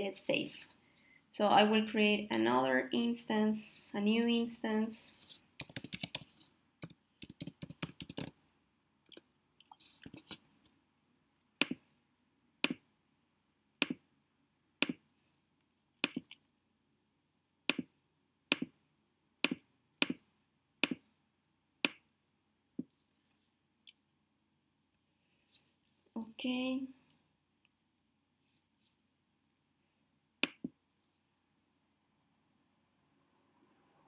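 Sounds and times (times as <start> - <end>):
typing on computer keyboard: 5.6 - 8.3.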